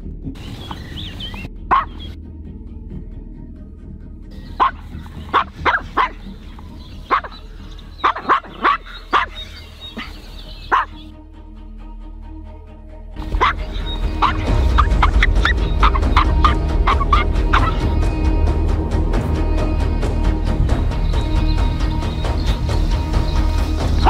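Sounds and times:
small dog barking: 0:01.7 - 0:02.1, 0:04.5 - 0:06.3, 0:07.1 - 0:07.4, 0:08.0 - 0:11.0, 0:13.2 - 0:14.9.

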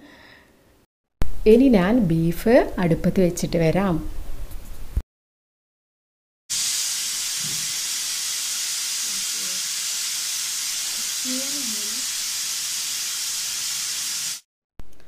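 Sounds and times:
pressure cooker whistle: 0:06.5 - 0:14.4
pressure cooker steam hissing: 0:06.5 - 0:14.5.

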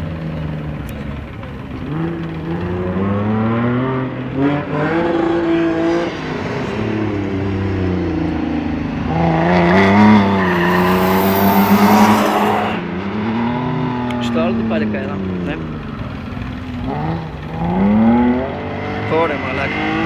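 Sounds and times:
rally car engine revving: 0:01.7 - 0:15.8, 0:16.7 - 0:20.0
tyres squealing: 0:10.2 - 0:12.8.

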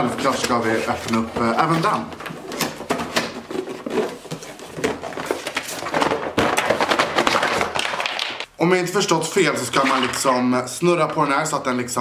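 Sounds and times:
cardboard box rustling and scraping: 0:00.2 - 0:07.0.

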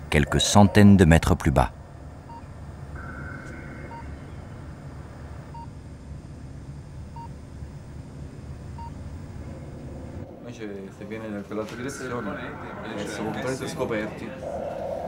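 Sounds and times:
higher held electronic tone: 0:02.9 - 0:04.6.

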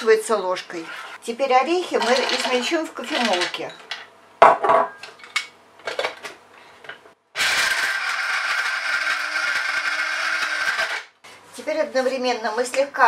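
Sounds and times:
nuts rattling into grinder: 0:07.4 - 0:11.0
grinder motor chopping nuts: 0:07.4 - 0:11.1.

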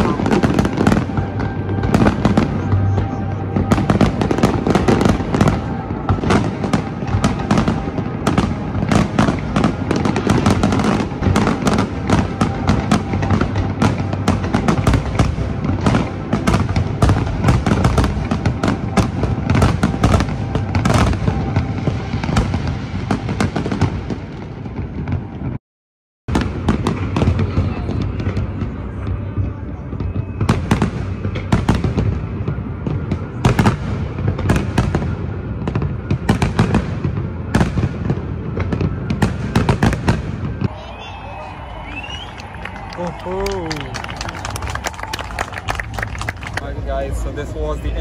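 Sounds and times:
music playing: 0:00.0 - 0:25.1
fireworks bursting: 0:00.0 - 0:25.6, 0:26.3 - 0:48.0.

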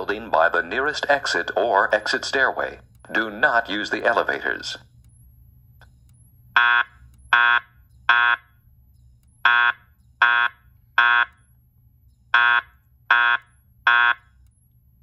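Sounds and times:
fire alarm beeps: 0:03.9 - 0:15.0.

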